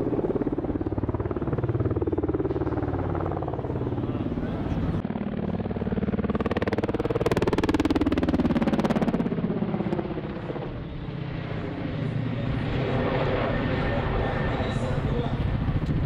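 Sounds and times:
helicopter rotors chopping: 0.0 - 16.0.

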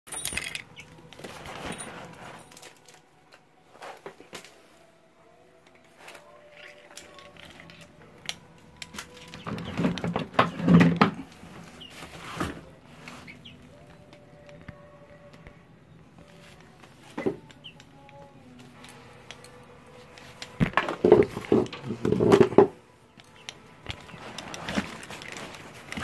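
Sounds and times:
clothes rustling: 0.1 - 5.0, 8.7 - 13.9, 16.2 - 26.0
plastic bag being shifted: 8.9 - 13.5, 24.0 - 26.0.

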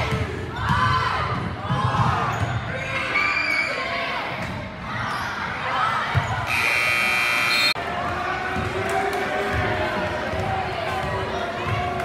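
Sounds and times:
loud steady buzzer: 6.5 - 7.8.

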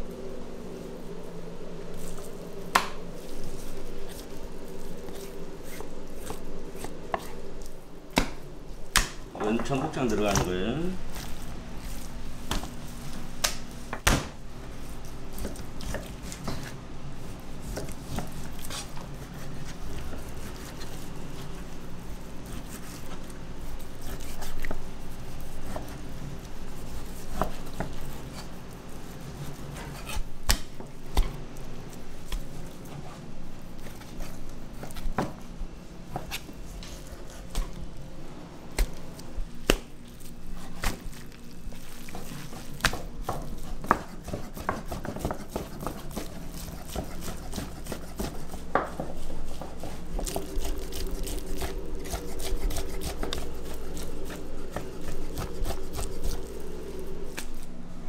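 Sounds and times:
steady low hum: 0.0 - 58.0
knife slicing meat: 40.1 - 56.7.

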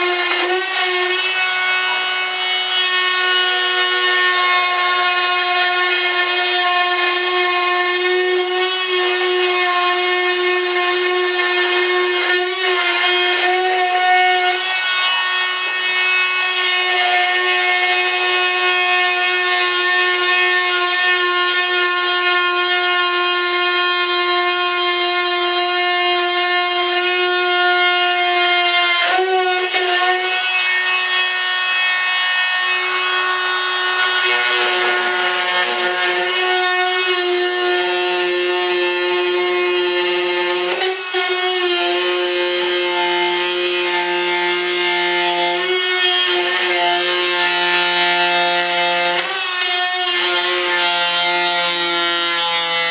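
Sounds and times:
rotary tool high-pitched whine: 29.2 - 52.9.

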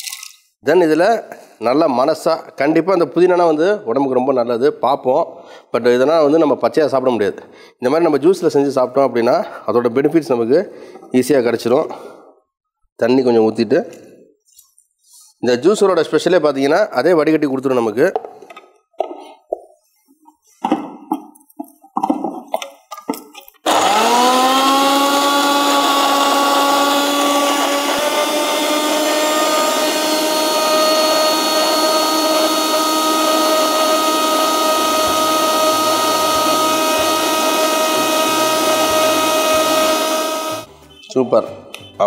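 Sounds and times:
mixer grinder motor whine: 23.6 - 40.7.

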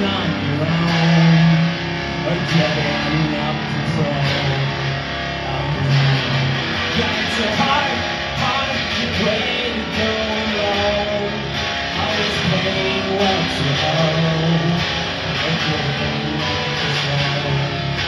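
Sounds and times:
electric guitar rock playing: 0.0 - 18.0.

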